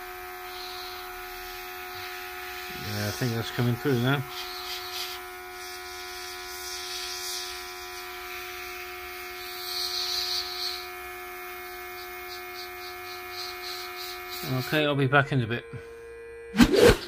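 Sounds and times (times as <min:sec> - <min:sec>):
compressor motor hum: 0:00.0 - 0:17.0
airbrush hissing: 0:00.4 - 0:14.8.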